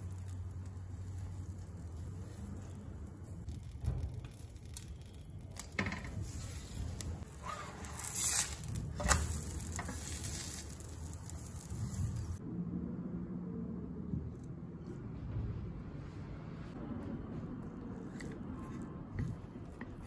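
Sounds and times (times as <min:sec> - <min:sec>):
pancake sizzling in oil: 0:08.3 - 0:12.4.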